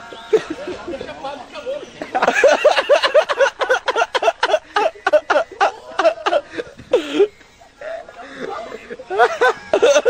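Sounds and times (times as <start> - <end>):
man laughing hard: 2.1 - 10.0.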